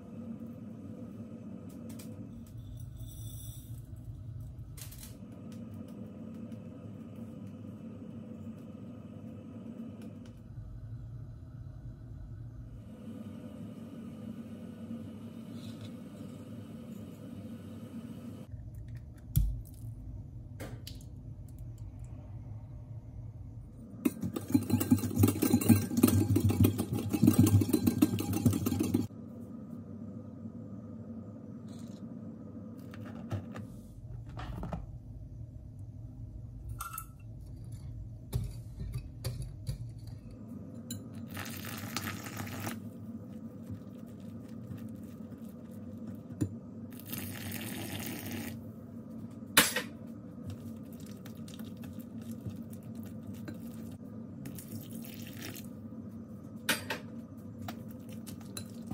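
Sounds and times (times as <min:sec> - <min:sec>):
stirring and scraping: 0:24.0 - 0:29.1, 0:42.5 - 0:46.4
whisk beating eggs in bowl: 0:24.0 - 0:29.1
water pouring: 0:47.0 - 0:48.6, 0:54.5 - 0:55.7.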